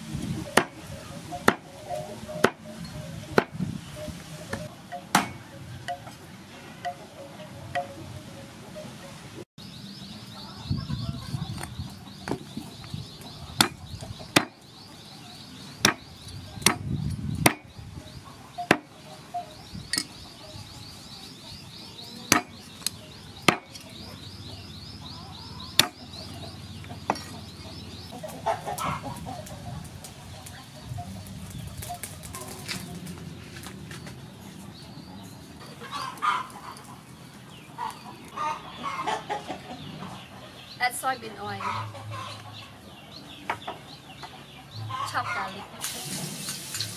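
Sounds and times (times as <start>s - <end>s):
chickens clucking: 0.1s - 9.4s, 10.2s - 46.9s
cleaver chopping on wooden board: 13.6s - 14.6s, 15.8s - 16.0s, 16.6s - 17.7s, 22.3s - 22.6s, 25.8s - 26.0s.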